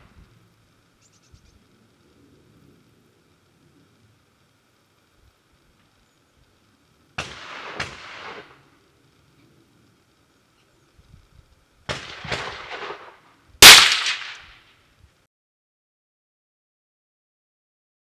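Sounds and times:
rifle shots echoing: 7.2s - 8.6s, 11.9s - 14.6s.

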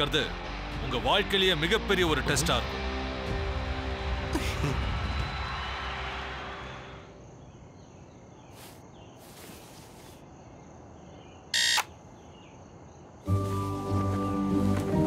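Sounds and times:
music: 0.0s - 7.1s, 13.2s - 15.0s
faint crickets: 6.5s - 14.6s
alarm clock electronic beep: 11.6s - 11.9s.

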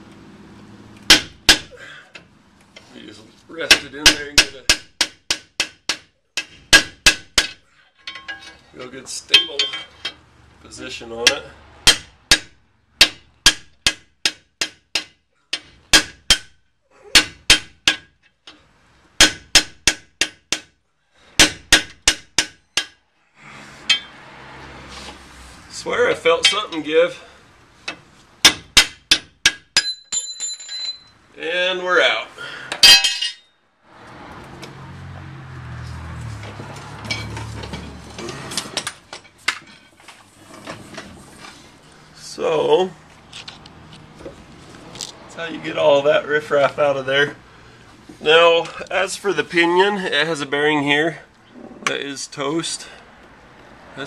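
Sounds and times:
sharp metallic knocks: 1.1s - 1.8s, 3.6s - 8.6s, 9.3s - 10.2s, 11.2s - 16.6s, 17.2s - 18.3s, 19.2s - 20.8s, 21.4s - 23.0s, 23.8s - 24.2s, 27.9s - 31.1s, 32.7s - 33.5s
metal parts clinking: 7.8s - 8.7s, 29.8s - 31.2s, 32.8s - 33.5s.

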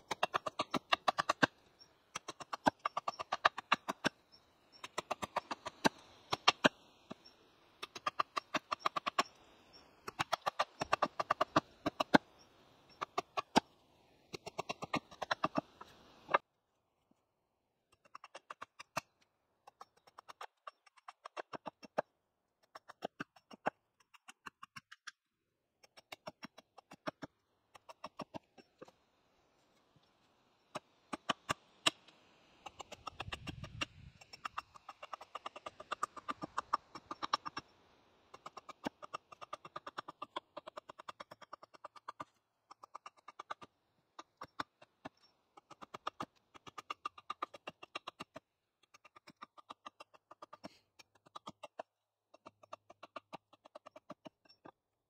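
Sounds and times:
hatchet chopping wooden pole: 0.0s - 4.2s, 4.8s - 7.2s, 7.8s - 9.4s, 10.0s - 12.3s, 12.9s - 16.4s, 17.8s - 28.9s, 30.7s - 37.7s, 38.3s - 54.8s.

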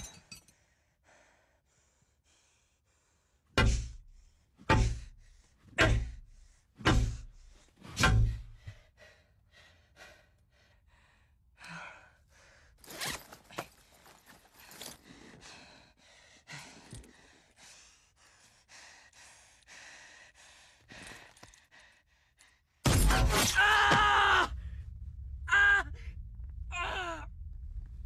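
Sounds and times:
man breathing hard and gasping: 14.6s - 22.6s.

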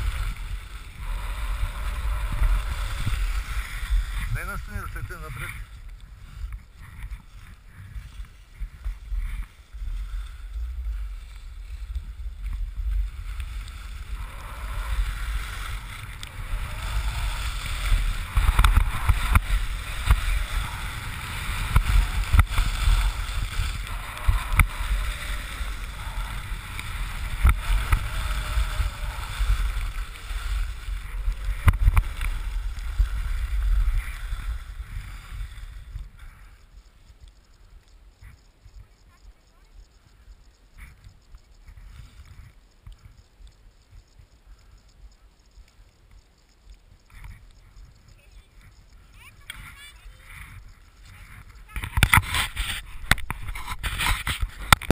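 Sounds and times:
wind buffeting microphone: 0.0s - 36.6s
skis scraping on snow: 0.0s - 37.5s, 47.0s - 54.9s.

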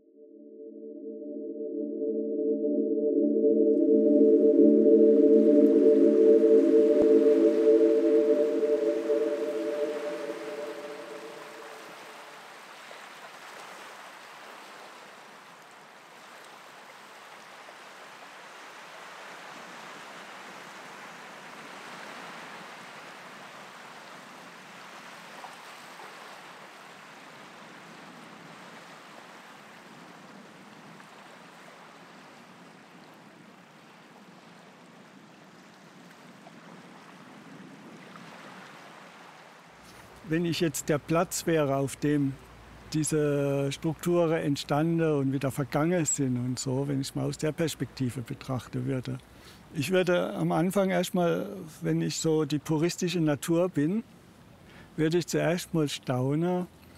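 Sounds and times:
held music chord: 0.0s - 11.9s.

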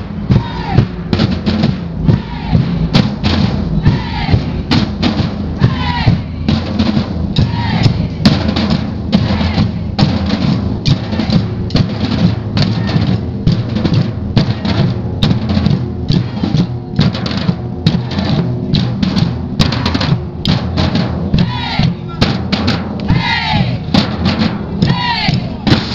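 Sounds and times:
samba drum band playing: 0.0s - 25.9s.

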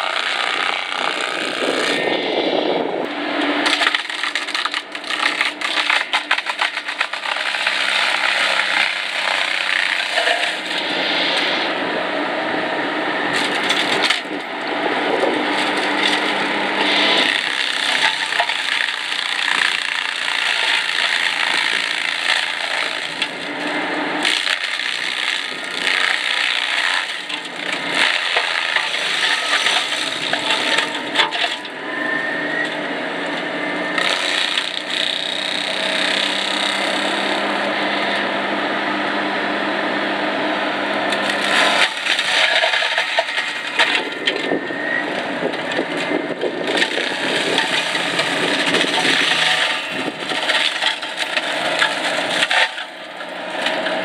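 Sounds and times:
mulcher shredding brush: 0.0s - 54.0s.

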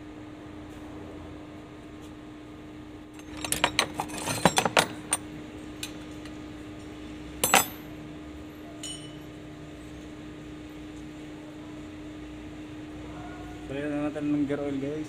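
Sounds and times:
metal tools clinking and rattling: 3.2s - 6.3s, 7.4s - 7.9s, 8.8s - 9.3s.

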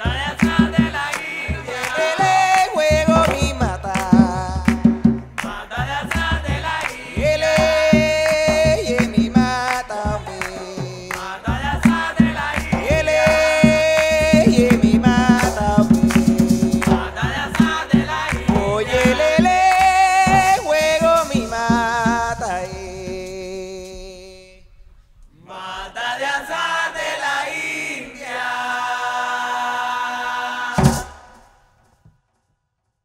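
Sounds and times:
hand drums: 0.0s - 23.8s, 30.8s - 31.4s
men singing with chorus: 0.0s - 24.6s, 25.3s - 31.6s.

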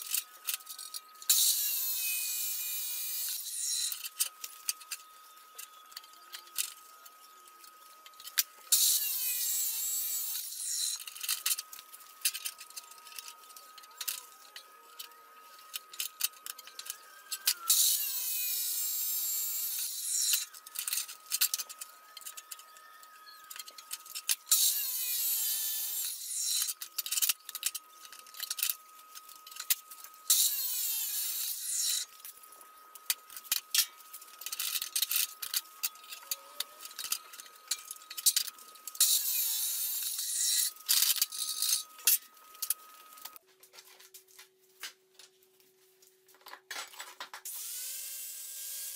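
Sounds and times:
chop saw cutting metal: 1.2s - 4.8s, 8.3s - 22.5s, 23.6s - 32.3s, 33.1s - 43.4s.

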